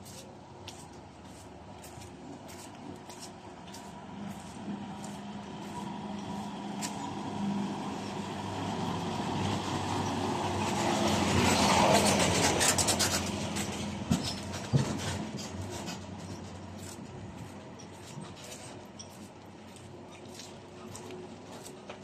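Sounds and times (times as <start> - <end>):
truck driving past: 3.7 - 16.8.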